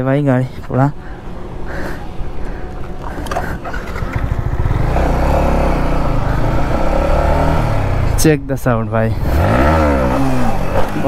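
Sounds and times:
motorcycle engine under throttle: 0:03.8 - 0:08.3, 0:09.2 - 0:11.0.

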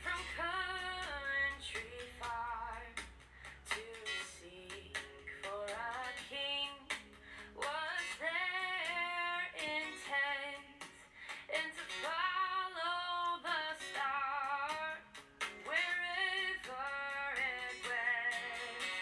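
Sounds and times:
woman singing: 0:00.0 - 0:19.0.

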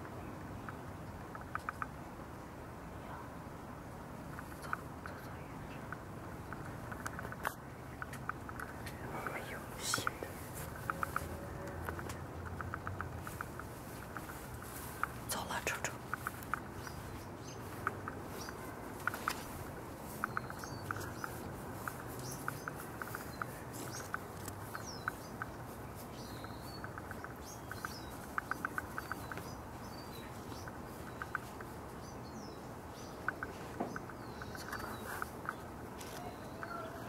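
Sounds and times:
small birds chirping: 0:00.0 - 0:03.3, 0:03.9 - 0:37.0
outdoor background hum: 0:00.0 - 0:37.0.

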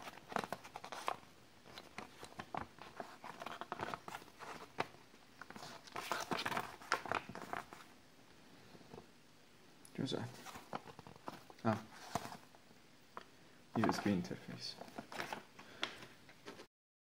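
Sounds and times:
paper rustling and crinkling: 0:00.0 - 0:07.9, 0:10.2 - 0:12.5, 0:13.8 - 0:16.7.

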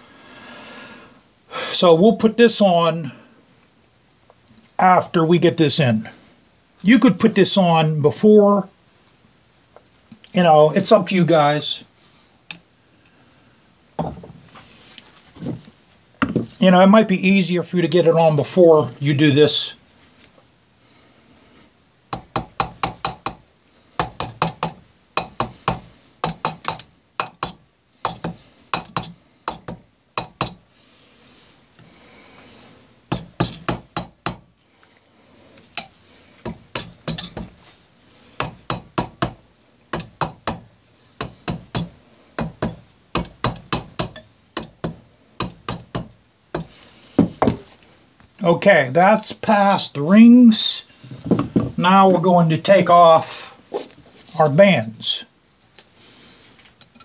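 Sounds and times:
hammer tapping metal: 0:22.1 - 0:23.4, 0:24.0 - 0:30.6, 0:33.1 - 0:34.5, 0:36.4 - 0:37.6, 0:38.4 - 0:47.6.

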